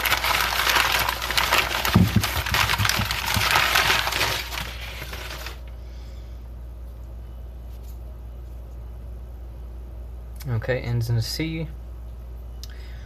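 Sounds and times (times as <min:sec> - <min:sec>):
packing paper crinkling: 0:00.0 - 0:05.7.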